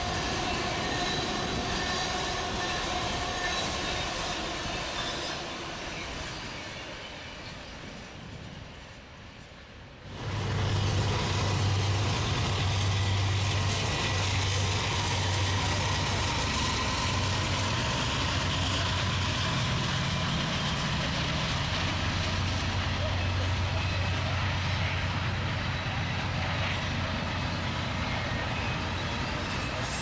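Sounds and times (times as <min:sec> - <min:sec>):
large diesel engine humming: 0:10.0 - 0:30.0.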